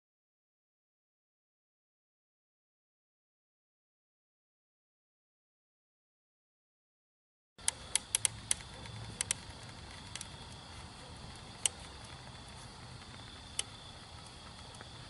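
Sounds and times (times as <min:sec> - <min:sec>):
faint steady hiss: 0:07.6 - 0:15.0
molten metal popping and crackling: 0:07.6 - 0:15.0.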